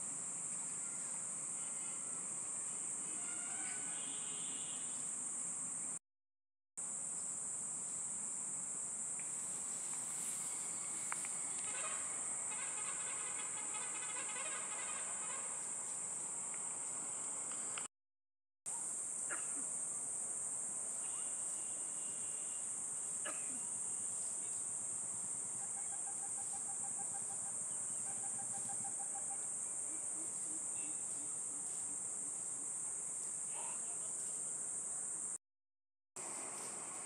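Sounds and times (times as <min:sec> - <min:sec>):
high-pitched insect chorus: 0:00.0 - 0:06.0, 0:06.8 - 0:17.9, 0:18.7 - 0:35.4, 0:36.2 - 0:37.0.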